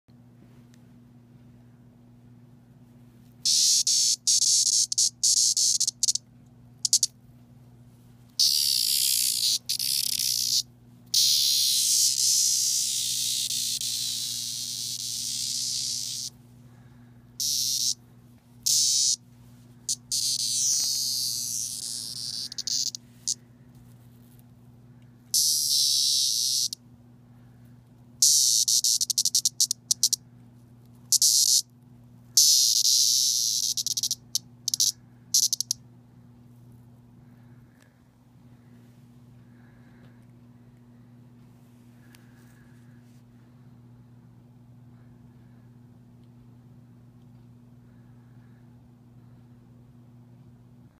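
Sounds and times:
cicada raspy distress buzz: 0:03.4 - 0:06.2, 0:06.8 - 0:07.1, 0:08.4 - 0:16.4, 0:17.4 - 0:18.0, 0:18.6 - 0:19.2, 0:19.9 - 0:23.4, 0:25.3 - 0:26.8, 0:28.2 - 0:30.2, 0:31.1 - 0:31.7, 0:32.4 - 0:35.8.

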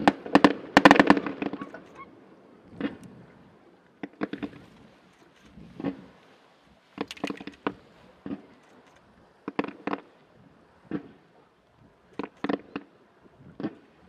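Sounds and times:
distant fireworks popping: 0:00.0 - 0:14.0.

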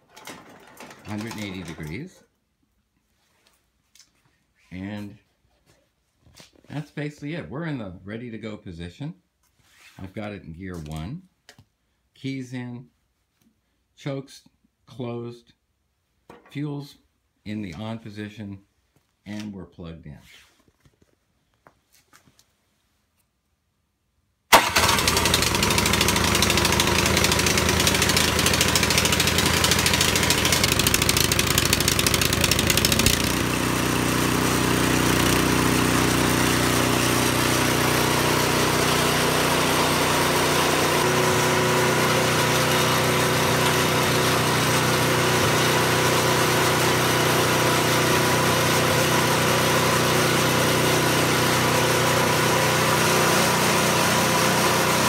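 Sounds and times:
electric starter cranking: 0:00.0 - 0:02.1, 0:24.5 - 0:55.0
small engine running: 0:24.6 - 0:55.0.

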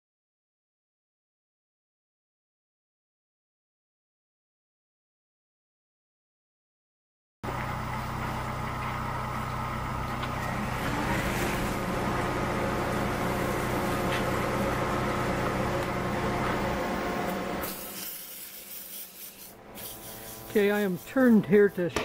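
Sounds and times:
wood lathe motor hum and whine: 0:07.5 - 0:17.6
sanding on spinning wood: 0:17.6 - 0:22.0.

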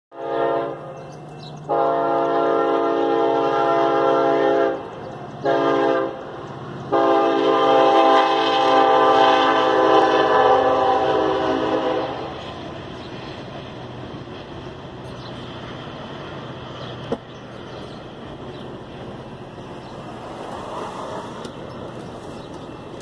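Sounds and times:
locomotive air horn blasts: 0:00.1 - 0:01.0, 0:01.7 - 0:12.4
low train rumble: 0:00.1 - 0:23.0.

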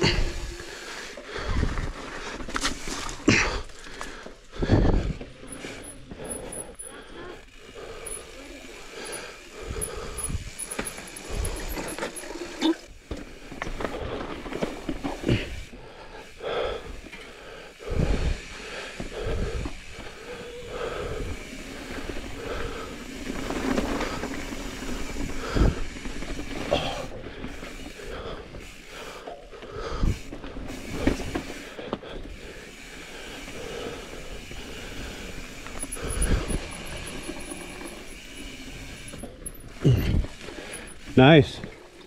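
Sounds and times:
bike tyres rolling over rock: 0:07.8 - 0:15.7, 0:19.0 - 0:29.0, 0:29.8 - 0:42.0.

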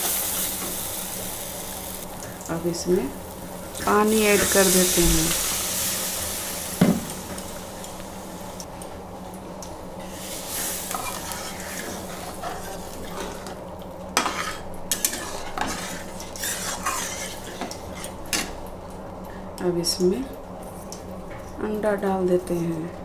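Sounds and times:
sizzle: 0:00.0 - 0:21.1
spatula scraping a metal pan: 0:14.2 - 0:18.1.

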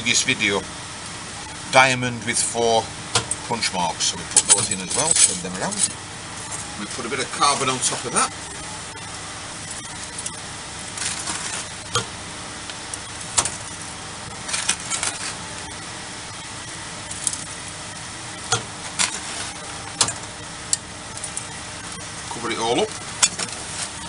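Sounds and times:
workshop hum: 0:00.0 - 0:24.0
charcoal scraping and crunching: 0:09.6 - 0:15.7, 0:18.4 - 0:24.0.

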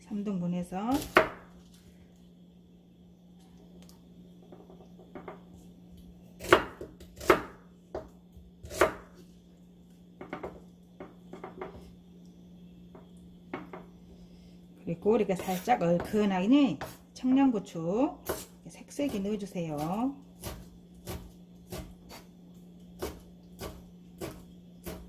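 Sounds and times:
knife cutting onion on wooden board: 0:00.9 - 0:01.5, 0:06.4 - 0:09.2, 0:15.4 - 0:17.1, 0:18.2 - 0:25.0.

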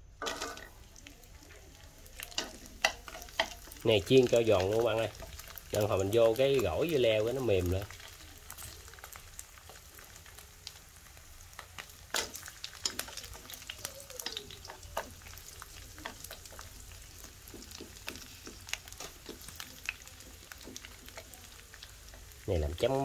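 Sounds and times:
fish frying in hot oil: 0:00.0 - 0:23.0
oil popping and crackling: 0:00.0 - 0:23.0.

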